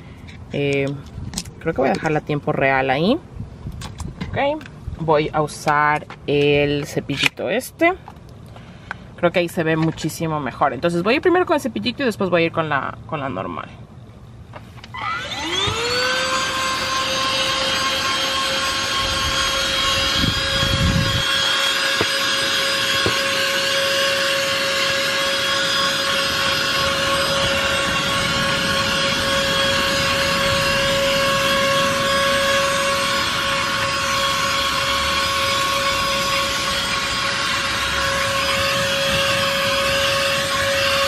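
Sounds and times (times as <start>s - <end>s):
vacuum cleaner whine: 14.9s - 41.0s
low rubbing: 15.5s - 41.0s.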